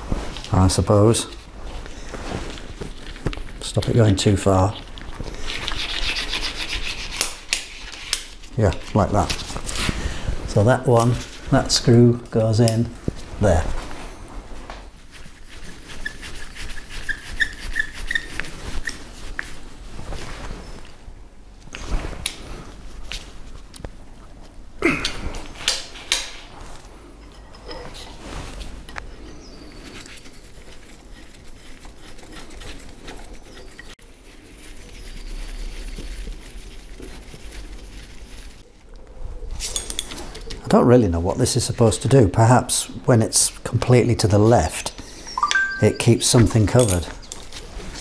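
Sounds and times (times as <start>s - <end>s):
screwdriver squeaking on screw: 17.0s - 19.0s.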